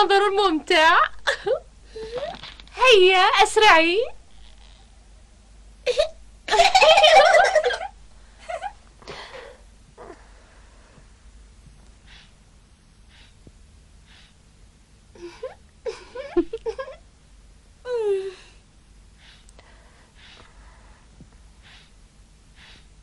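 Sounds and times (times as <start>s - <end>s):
girls laughing: 6.5s - 8.8s, 15.9s - 17.0s.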